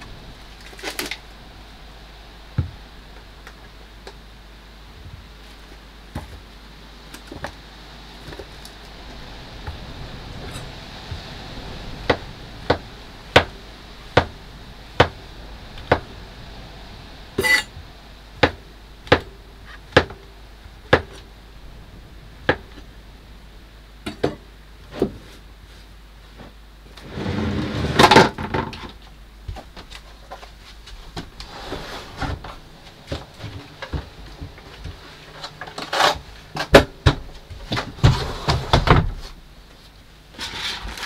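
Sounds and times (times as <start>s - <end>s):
rustling clatter: 24.9s - 41.0s.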